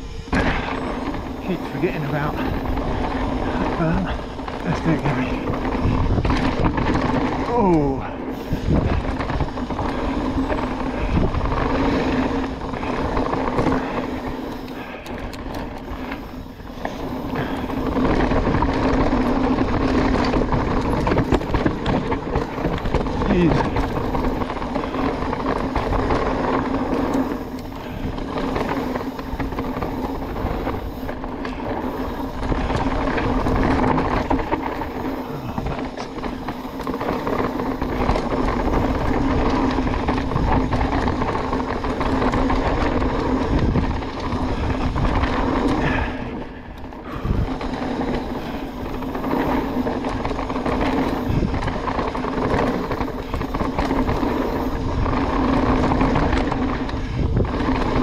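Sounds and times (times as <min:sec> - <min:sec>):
bike drivetrain and frame rattle: 0:00.0 - 0:58.0
bike tyre noise on dirt: 0:00.0 - 0:58.0
wind on microphone: 0:00.0 - 0:58.0.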